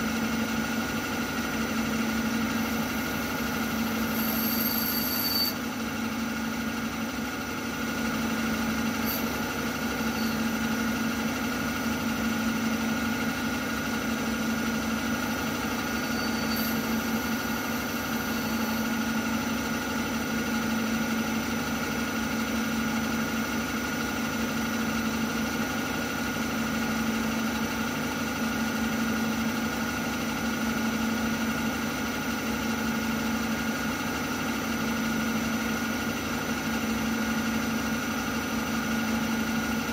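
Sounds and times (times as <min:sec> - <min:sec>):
milling machine spindle whine: 0:00.1 - 0:20.8.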